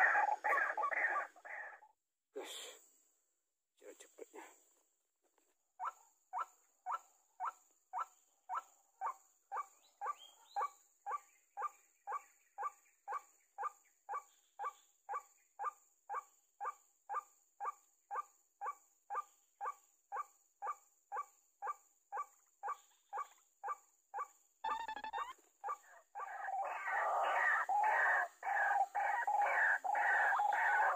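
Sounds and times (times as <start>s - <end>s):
waterhen calling: 0.0s - 1.7s, 24.6s - 25.4s.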